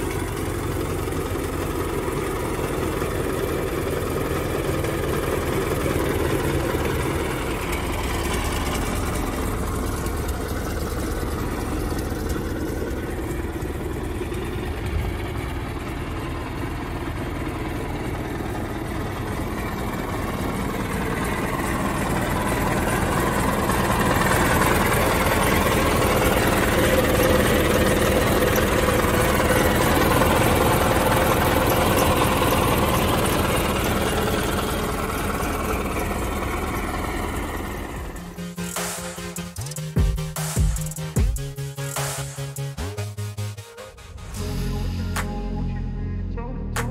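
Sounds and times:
engine idling: 0:00.0 - 0:46.9.

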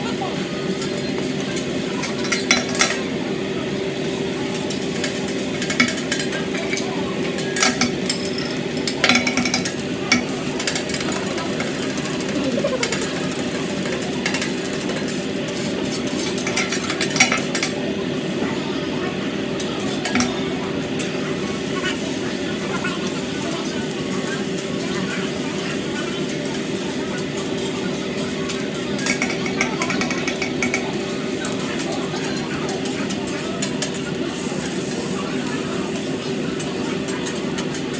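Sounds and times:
food sizzling: 0:04.4 - 0:17.6
metal spatulas clacking on griddle: 0:04.6 - 0:17.8, 0:19.8 - 0:20.4, 0:28.5 - 0:34.1.

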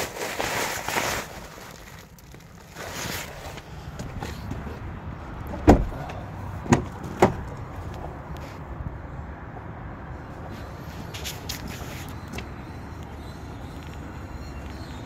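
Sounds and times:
airbag fabric rustling: 0:00.0 - 0:04.6.

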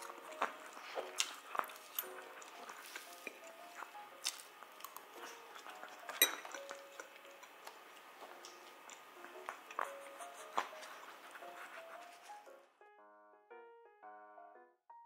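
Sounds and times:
fork clinking on ceramic plate: 0:06.1 - 0:06.6.

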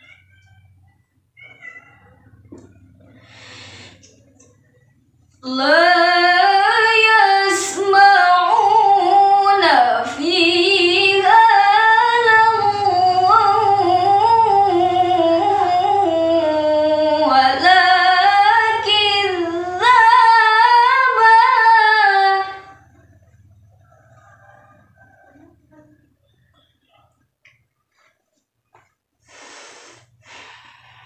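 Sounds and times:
short breaths: 0:03.1 - 0:04.3, 0:29.2 - 0:31.0
woman reciting in chanted style: 0:04.6 - 0:23.6.

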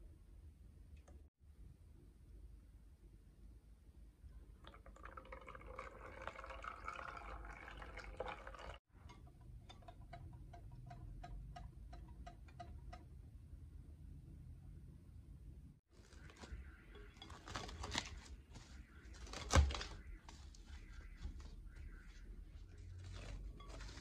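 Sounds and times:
whisk tapping glass bowl: 0:09.0 - 0:13.2.

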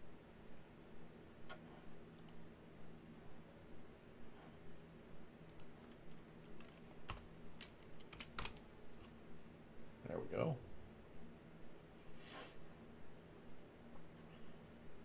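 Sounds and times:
computer keyboard typing: 0:05.5 - 0:09.1.

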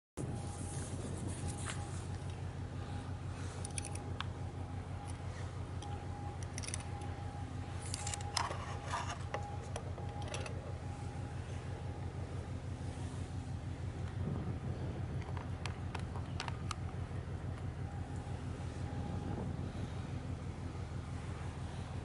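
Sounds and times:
diesel engines throbbing: 0:00.2 - 0:22.0
faint steady hum: 0:00.2 - 0:22.0
light clicks: 0:15.2 - 0:17.7.

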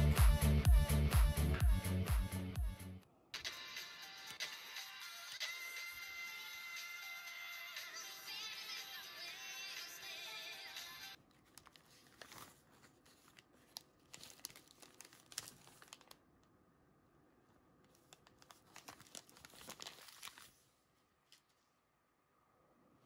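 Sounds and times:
music: 0:00.0 - 0:11.2
plastic bags crinkling: 0:11.2 - 0:16.6, 0:17.8 - 0:21.5.

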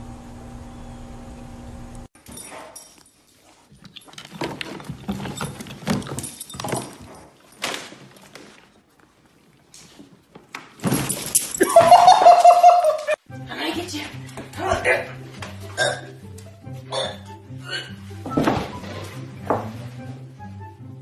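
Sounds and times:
dogs playing and vocalising: 0:02.2 - 0:07.6.

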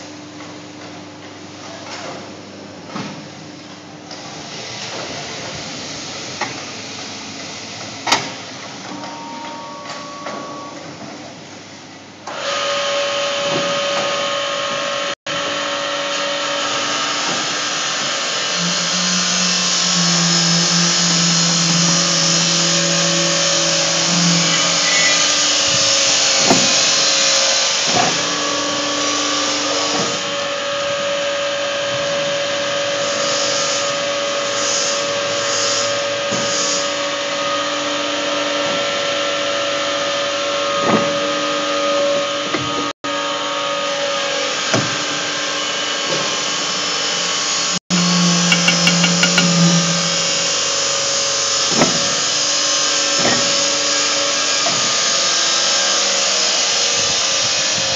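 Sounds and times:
pipe bending machine humming: 0:07.4 - 0:31.2, 0:47.0 - 0:56.4
metallic clanks: 0:48.4 - 0:50.3.

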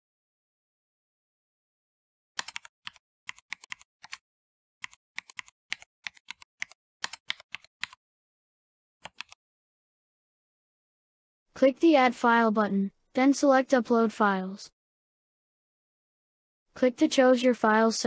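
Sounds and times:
computer keyboard typing: 0:02.4 - 0:04.2, 0:04.8 - 0:08.0, 0:09.0 - 0:09.4.

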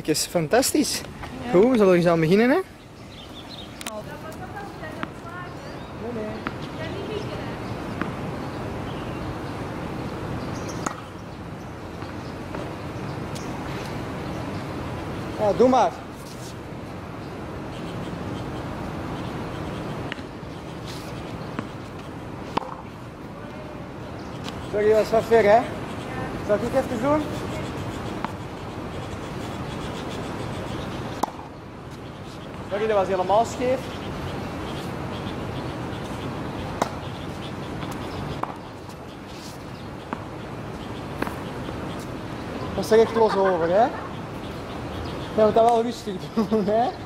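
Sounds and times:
steady background noise: 0:00.0 - 0:47.0
tennis ball pops: 0:10.8 - 0:11.1, 0:22.5 - 0:22.9, 0:31.2 - 0:31.5
ball bouncing on hard court: 0:22.5 - 0:22.9
tennis racket striking ball: 0:22.5 - 0:22.9, 0:31.2 - 0:31.5, 0:37.8 - 0:38.6.

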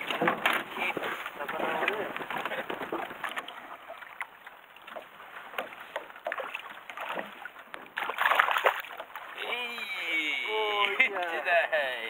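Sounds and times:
water lapping against boat hull: 0:00.0 - 0:11.8.

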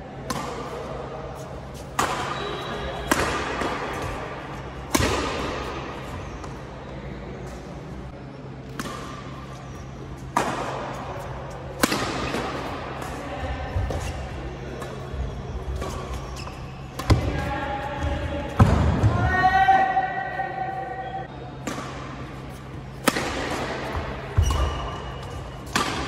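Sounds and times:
rackets striking shuttlecock: 0:01.9 - 0:04.2, 0:04.8 - 0:06.4, 0:08.7 - 0:13.1, 0:21.6 - 0:26.0.

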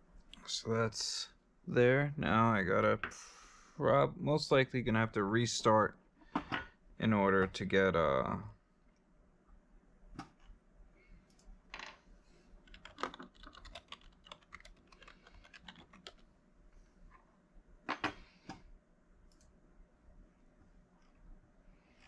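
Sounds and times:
computer keyboard typing: 0:12.6 - 0:16.3.

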